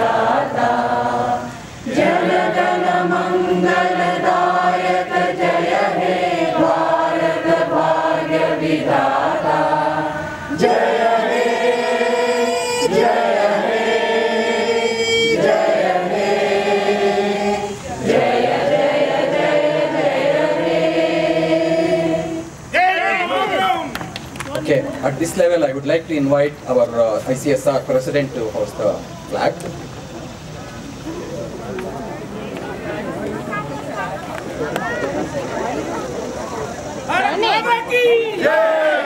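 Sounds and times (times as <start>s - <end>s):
group singing in unison: 0.0s - 22.7s, 38.4s - 39.0s.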